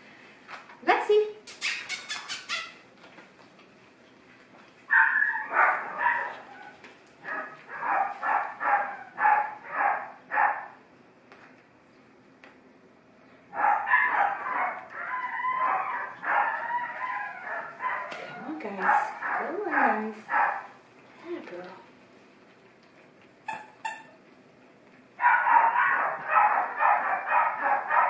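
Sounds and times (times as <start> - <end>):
puppies barking and yelping: 4.9 - 10.7, 13.5 - 20.8, 25.2 - 28.0.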